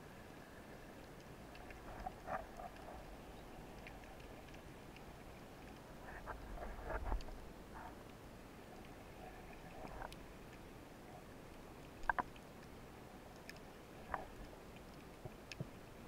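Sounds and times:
clicks and creaks: 0:01.0 - 0:08.0, 0:08.8 - 0:10.6, 0:11.8 - 0:15.8.

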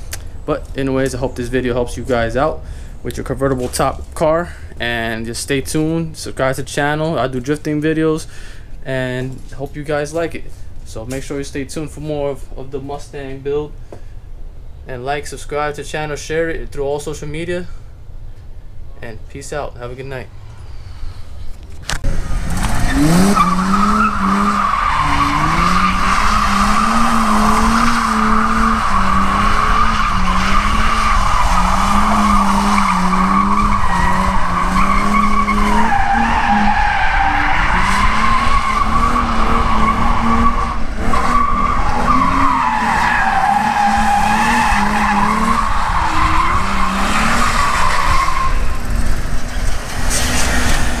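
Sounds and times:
car engine revving: 0:22.0 - 0:51.0
tires squealing: 0:22.1 - 0:51.0.

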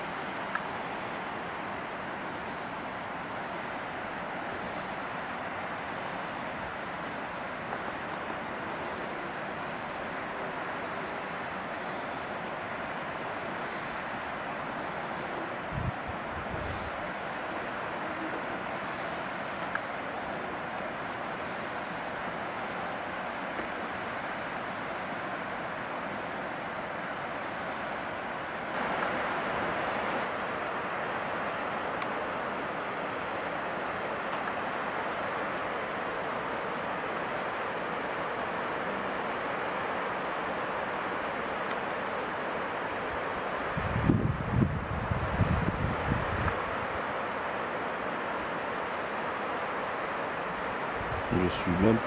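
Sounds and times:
steady rushing outdoor noise: 0:00.0 - 0:52.0.

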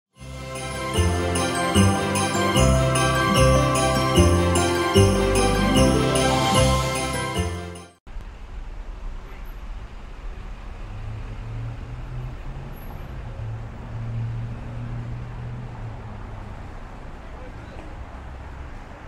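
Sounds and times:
festive holiday song with sleigh bells: 0:00.2 - 0:08.0
street traffic rumble: 0:08.1 - 0:19.0
vehicle engine hum: 0:08.1 - 0:19.0.

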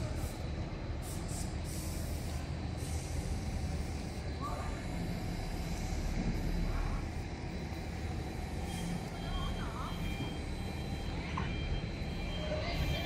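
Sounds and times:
short air hisses: 0:01.0 - 0:03.3.

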